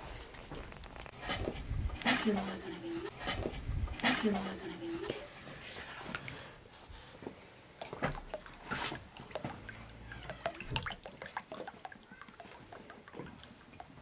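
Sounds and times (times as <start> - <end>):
milk trickling into a bowl: 7.8 - 14.0.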